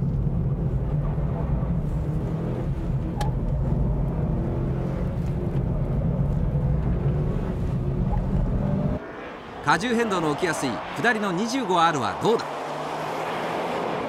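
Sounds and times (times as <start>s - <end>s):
car engine drone inside cabin: 0.0s - 9.6s.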